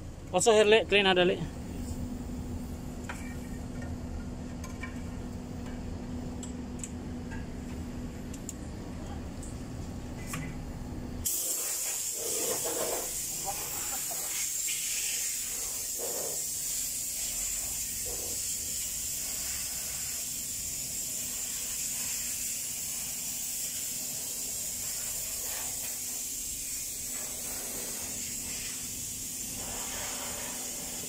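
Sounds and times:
compressed air hissing: 11.2s - 31.0s.

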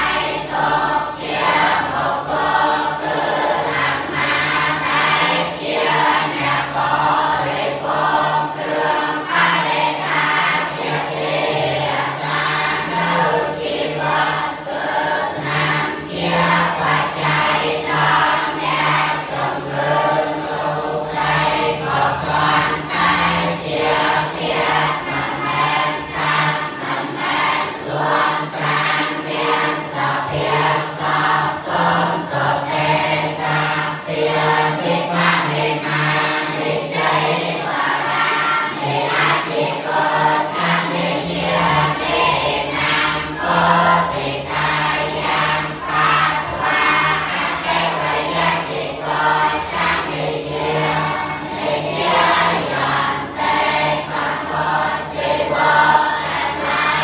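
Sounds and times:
monks chanting in unison: 0.0s - 57.0s.

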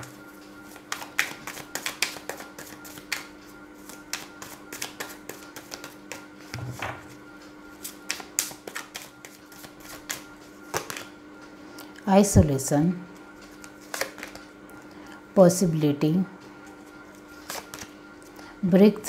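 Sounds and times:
cards being shuffled: 0.7s - 7.2s, 7.8s - 11.2s, 13.4s - 14.5s, 17.3s - 17.9s.

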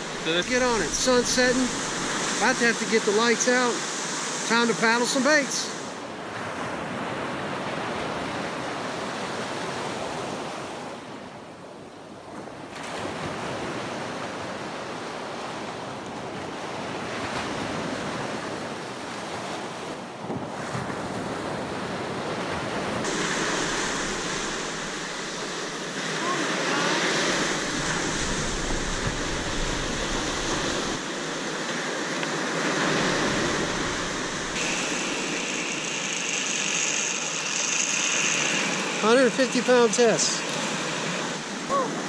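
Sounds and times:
ocean surf breaking on beach: 0.0s - 42.0s
wind on microphone: 27.3s - 31.2s.

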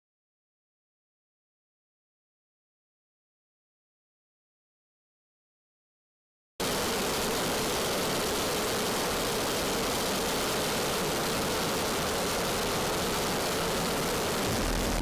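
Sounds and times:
fighter jet roar: 14.2s - 15.0s.

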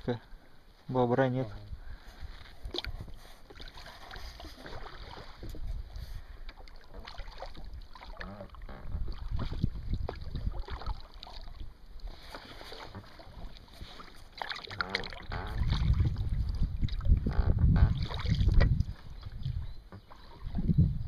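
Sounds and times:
water lapping and splashing: 1.5s - 21.0s
wind rumbling on microphone: 4.2s - 6.4s, 7.5s - 11.0s, 14.7s - 21.0s.

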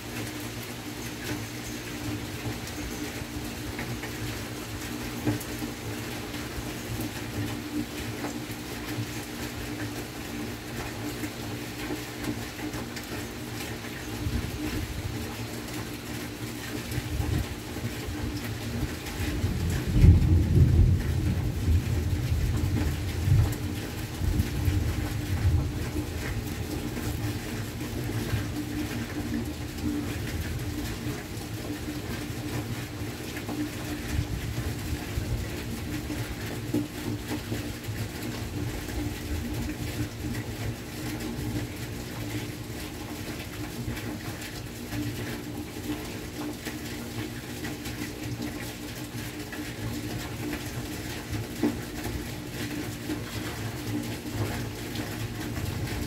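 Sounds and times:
rain hissing: 0.0s - 43.3s
rolling thunder: 19.5s - 23.5s.

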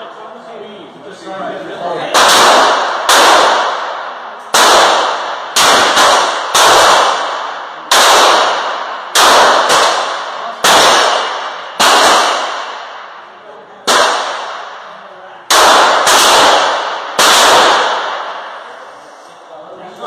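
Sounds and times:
pistol shots echoing indoors: 2.1s - 18.7s.

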